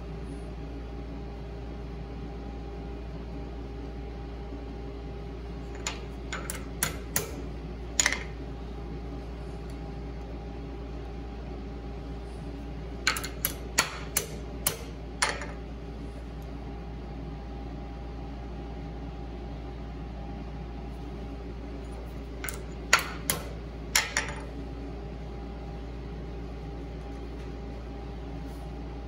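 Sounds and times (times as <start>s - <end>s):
steady hum: 0.0s - 29.0s
metal-on-metal taps: 13.1s - 15.6s.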